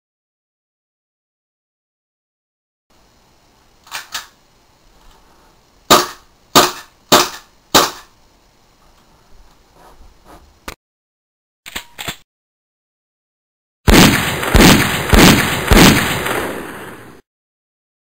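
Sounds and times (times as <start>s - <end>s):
airsoft pistol shots: 5.9s - 8.1s, 13.9s - 17.2s.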